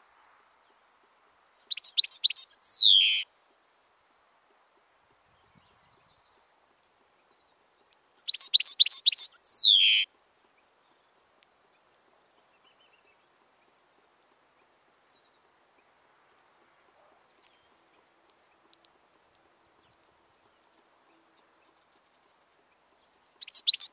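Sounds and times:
goldfinch singing: 0:01.6 - 0:03.3, 0:08.2 - 0:10.1, 0:22.8 - 0:23.9.

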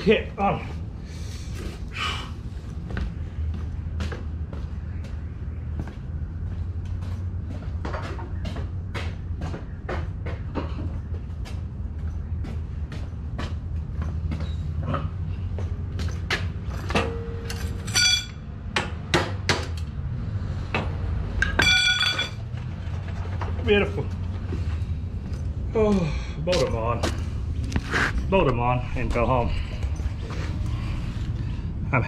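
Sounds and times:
steady low hum: 0:00.0 - 0:32.0
short metallic rings: 0:17.0 - 0:18.5, 0:21.4 - 0:22.4.

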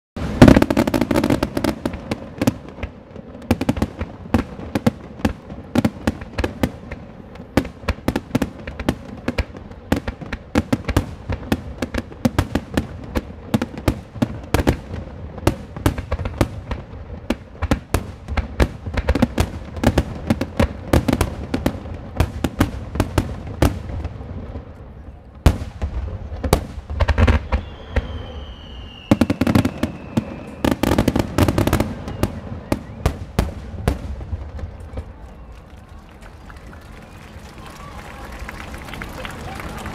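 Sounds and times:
fireworks bangs and crackles: 0:00.2 - 0:39.9
deep firework booms: 0:25.4 - 0:35.1.

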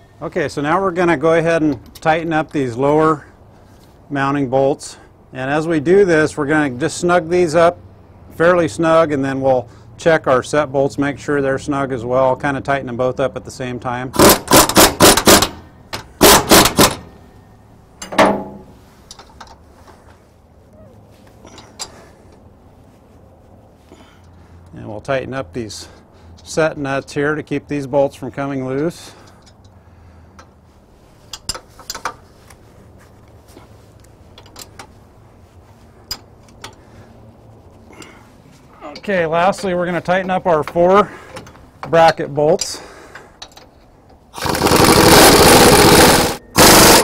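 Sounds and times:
impact wrench hammering: 0:14.2 - 0:17.1, 0:44.4 - 0:47.0
wrench clinking on metal bolts: 0:31.3 - 0:32.2.

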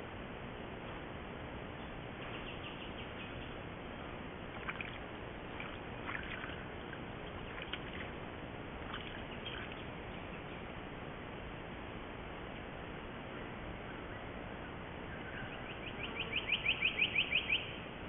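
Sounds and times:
microphone hiss: 0:00.0 - 0:18.0
deer drinking with splashes: 0:04.6 - 0:08.2, 0:08.8 - 0:09.9.

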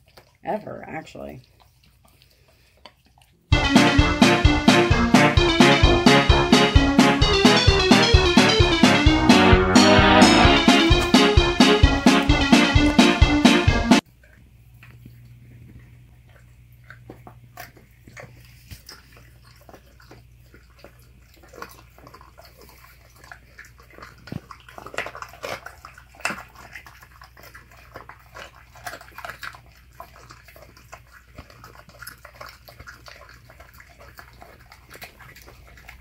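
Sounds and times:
dog gnawing wet food: 0:00.0 - 0:03.6, 0:14.0 - 0:36.0
bones crunching and cracking: 0:20.7 - 0:36.0.

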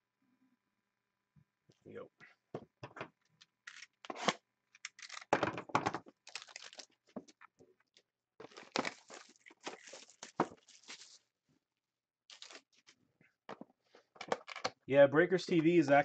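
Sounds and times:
plastic wrap crinkling and ripping: 0:06.1 - 0:07.4, 0:08.4 - 0:11.3, 0:12.3 - 0:13.0.

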